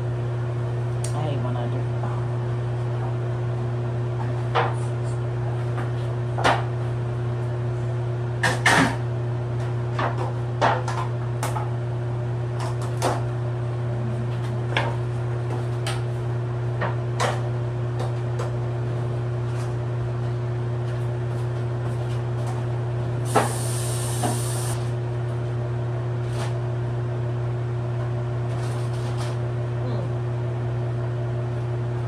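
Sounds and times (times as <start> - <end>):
steady low hum: 0.0 - 32.0
high hiss: 23.3 - 24.8.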